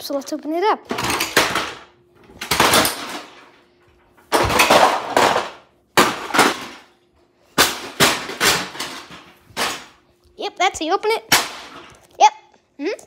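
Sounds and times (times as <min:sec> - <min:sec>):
plastic cracking and banging: 0:00.9 - 0:10.0, 0:11.2 - 0:12.0.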